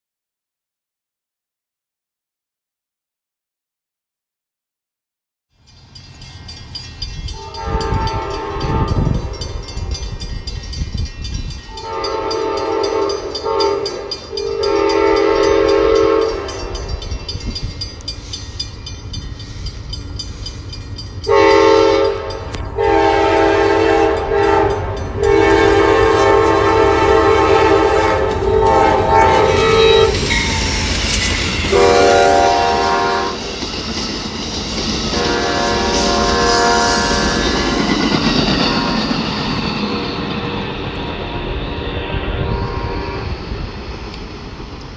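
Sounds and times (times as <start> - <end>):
train rumbling: 5.6 - 44.9
locomotive air horn blasts: 7.4 - 9.6, 11.7 - 16.8, 21.3 - 30.3, 31.7 - 33.5, 35.1 - 37.6, 39.9 - 43.5.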